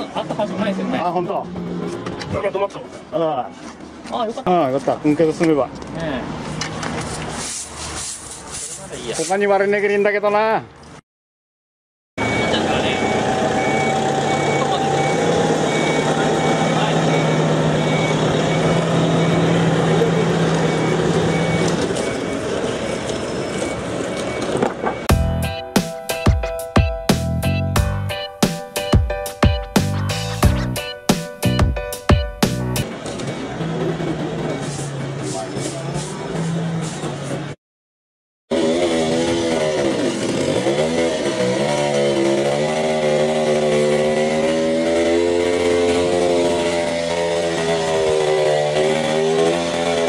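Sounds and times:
forklift engine humming: 12.2s - 25.7s
reversing alarm beeping: 12.2s - 29.6s, 32.2s - 34.8s
chainsaw running: 12.6s - 21.7s, 38.5s - 50.0s.

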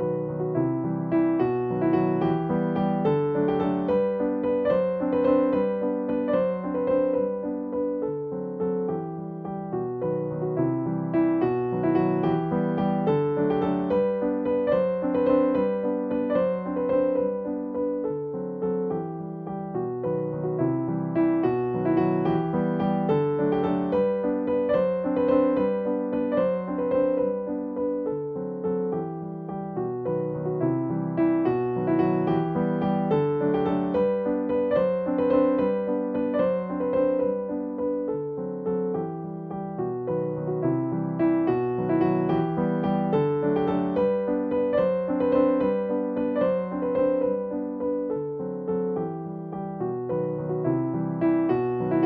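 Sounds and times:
gentle piano melody: 0.0s - 52.0s.

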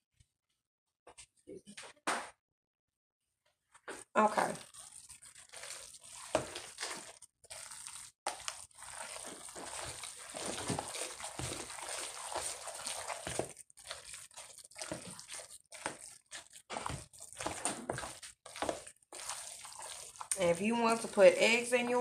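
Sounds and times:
hand squishing moist food: 4.3s - 22.0s.

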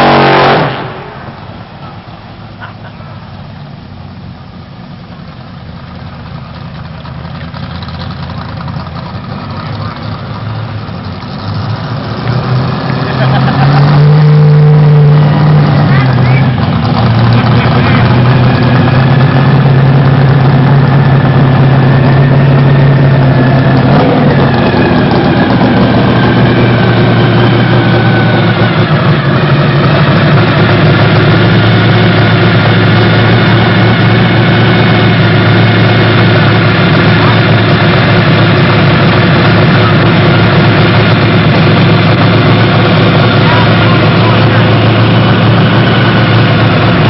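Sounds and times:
car engine driving past: 0.0s - 2.2s.

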